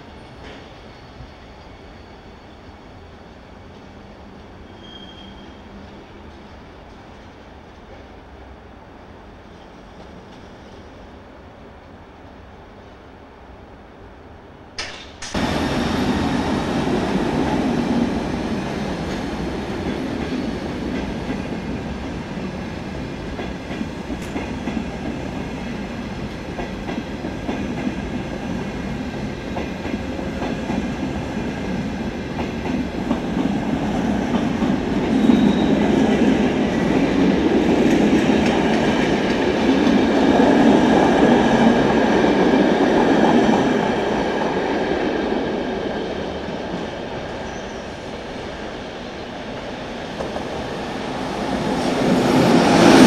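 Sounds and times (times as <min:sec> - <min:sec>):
train wheels rumbling on rails: 0:00.0 - 0:08.6, 0:14.8 - 0:53.0.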